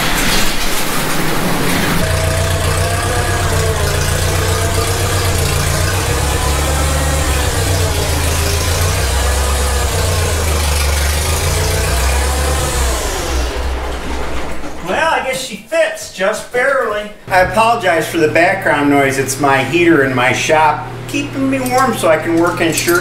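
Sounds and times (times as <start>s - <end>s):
tractor engine running: 0.0s - 15.2s
garage door rolling up: 0.0s - 15.4s
heater rushing: 0.0s - 23.0s.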